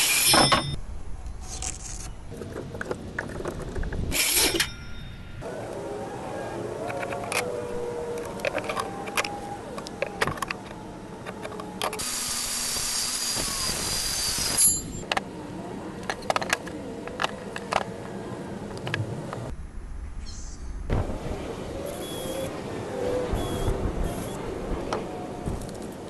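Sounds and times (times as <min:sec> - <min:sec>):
circular saw cutting wood: 0:11.9 - 0:15.0.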